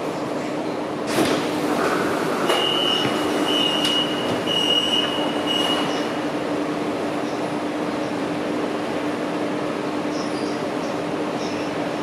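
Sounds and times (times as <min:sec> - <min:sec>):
train low hum: 0:00.0 - 0:12.0.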